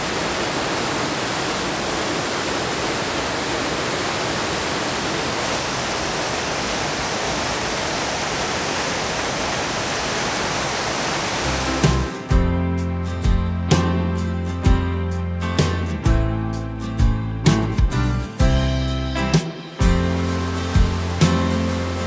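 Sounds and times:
waterfall rushing: 0.0s - 12.4s, 19.8s - 22.0s.

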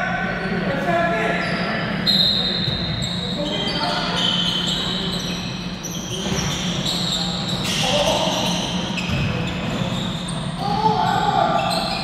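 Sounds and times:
players' voices echoing: 0.0s - 12.0s
sneakers squeaking on court: 1.3s - 12.0s
basketball bouncing: 9.0s - 9.8s.

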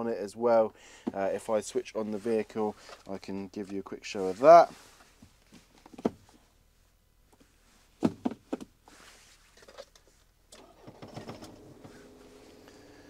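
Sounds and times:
truck starting up: 10.6s - 13.0s.

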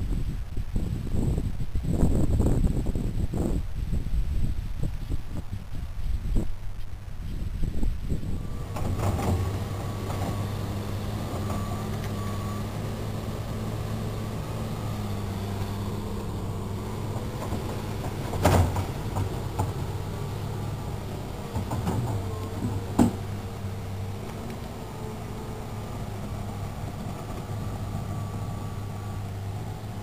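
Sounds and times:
excavator diesel engine running: 8.2s - 30.0s.

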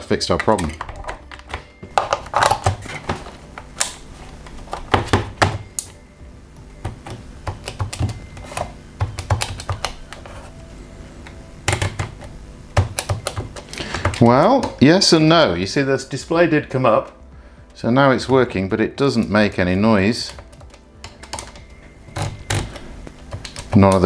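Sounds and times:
knocks on plastic keyboard: 9.0s - 10.0s.

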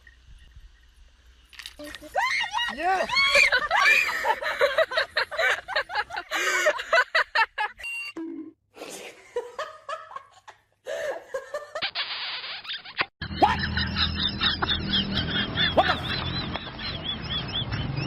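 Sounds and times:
people laughing: 2.2s - 7.8s, 12.9s - 17.8s.

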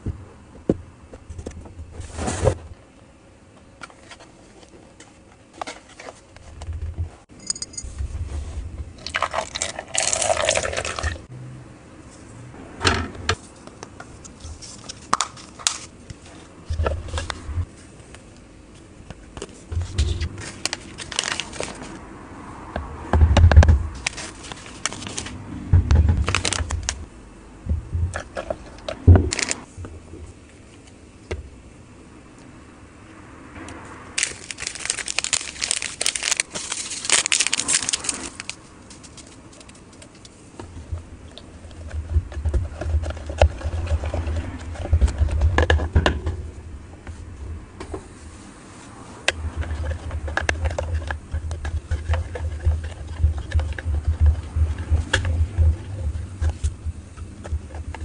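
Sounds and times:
water pouring into plastic: 9.0s - 11.2s
plastic parts tapping and scraping: 34.2s - 46.4s, 49.3s - 58.0s.

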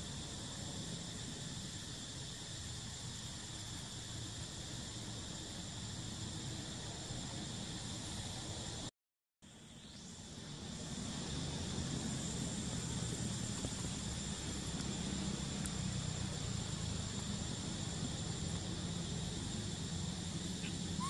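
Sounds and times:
high insect-like drone: 9.5s - 21.0s.

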